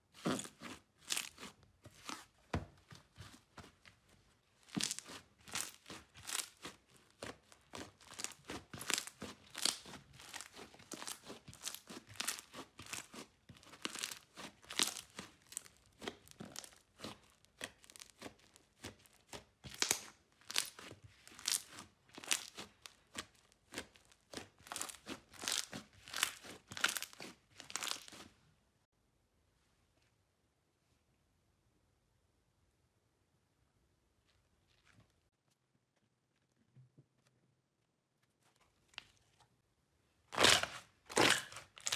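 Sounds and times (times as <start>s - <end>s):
slime crackling and popping: 0.2s - 2.3s, 4.6s - 28.3s, 40.4s - 41.9s.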